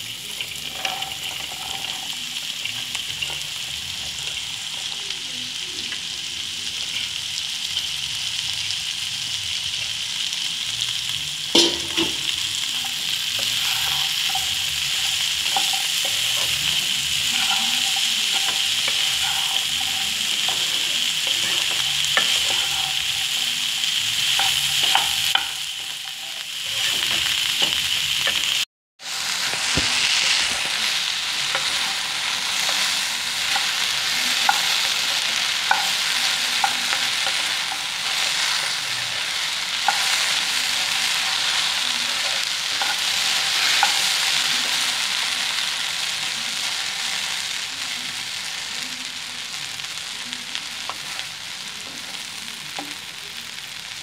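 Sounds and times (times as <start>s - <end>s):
okra sizzling in a pan: 0.0s - 54.0s
wooden spatula scraping a pan: 12.2s - 28.5s.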